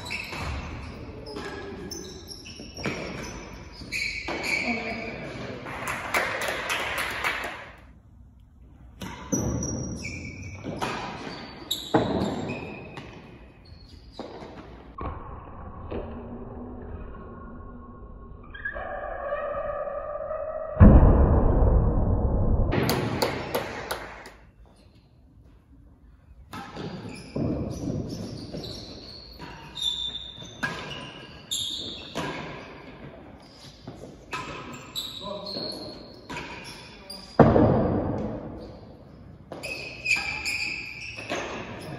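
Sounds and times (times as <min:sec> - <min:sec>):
ball knocks echoing in a hall: 0:00.0 - 0:08.0, 0:08.7 - 0:18.5, 0:20.7 - 0:41.9
ball rebounding off walls: 0:22.7 - 0:24.4
racquets striking ball: 0:22.8 - 0:24.5.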